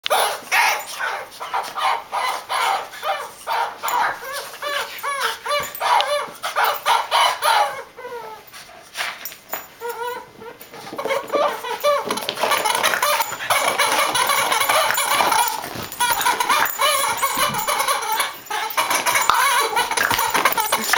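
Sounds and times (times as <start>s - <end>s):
toy chicken clucking: 11.0s - 20.9s.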